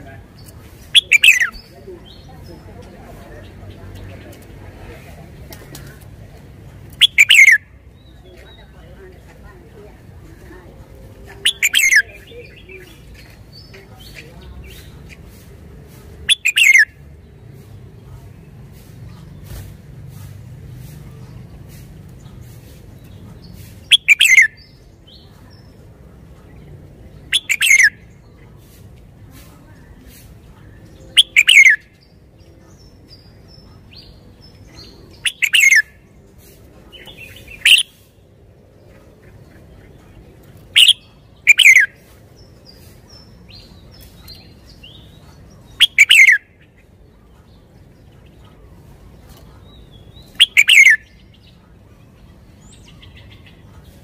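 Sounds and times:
soft bird chirps: 0:00.0 - 0:02.5, 0:06.9 - 0:09.1, 0:16.2 - 0:54.0
bird singing quick phrases: 0:00.0 - 0:02.6, 0:06.9 - 0:08.5, 0:11.4 - 0:15.3, 0:16.2 - 0:18.1, 0:19.1 - 0:25.8, 0:26.5 - 0:28.7, 0:30.7 - 0:36.2, 0:36.9 - 0:38.2, 0:39.4 - 0:53.8.

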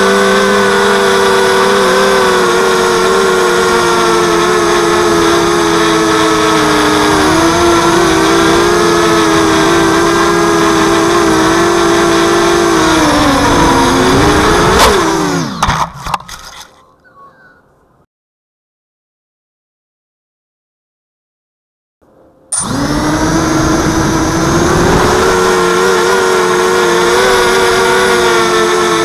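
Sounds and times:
quadcopter motors whining: 0:00.0 - 0:16.2, 0:22.5 - 0:29.0.

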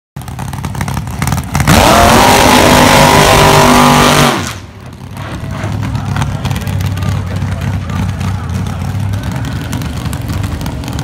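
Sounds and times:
car engine revving hard: 0:01.6 - 0:04.7.

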